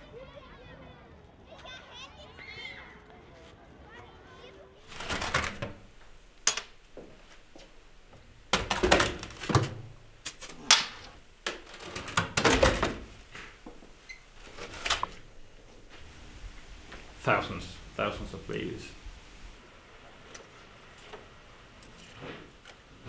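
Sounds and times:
knocks and clatter of metal tanks: 0:08.2 - 0:10.1, 0:11.5 - 0:13.6.

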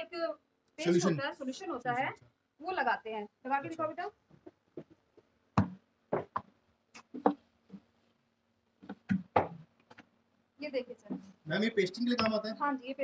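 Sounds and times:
wood knocking on wood: 0:05.6 - 0:06.5, 0:08.8 - 0:09.7.

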